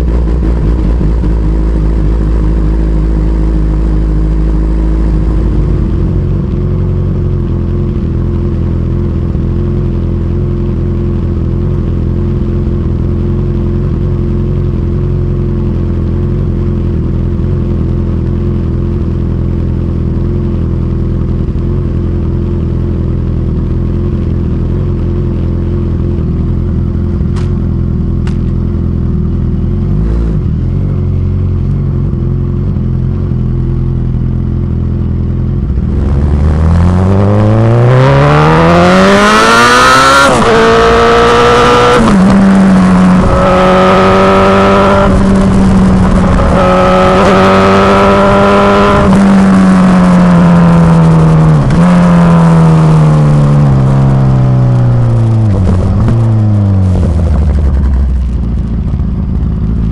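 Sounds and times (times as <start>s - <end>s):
motorcycle engine idling: 0.0s - 36.4s, 54.8s - 59.9s
motorcycle pulling away: 33.8s - 59.9s.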